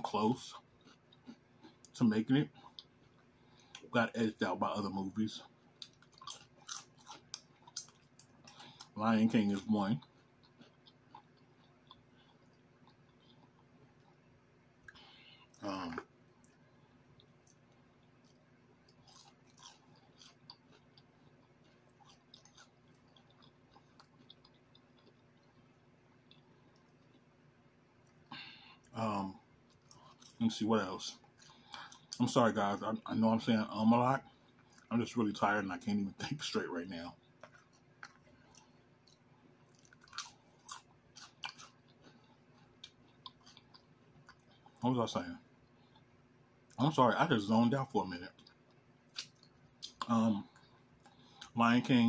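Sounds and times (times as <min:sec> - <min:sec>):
chewing crunchy chip: 0:00.1 - 0:03.9, 0:05.4 - 0:14.3, 0:14.9 - 0:27.4, 0:37.2 - 0:44.8
mouth clicks and smacks: 0:48.4 - 0:50.1.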